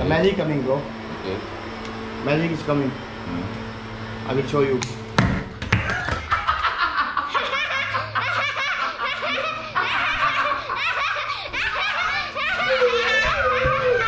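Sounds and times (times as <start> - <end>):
people laughing: 5.8 - 14.0.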